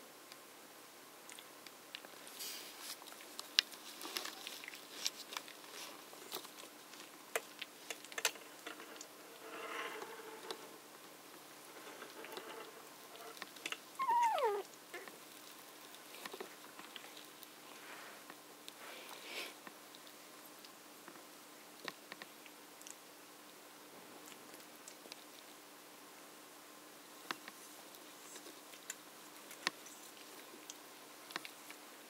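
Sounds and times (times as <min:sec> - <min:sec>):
high puppy squeal: 0:14.0 - 0:14.7
puppy whimpering: 0:14.0 - 0:14.7.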